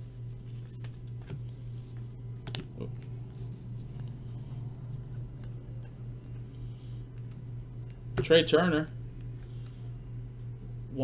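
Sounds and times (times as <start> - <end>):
steady low hum: 0.0 - 11.0
trading cards clicking and rustling: 0.3 - 6.4.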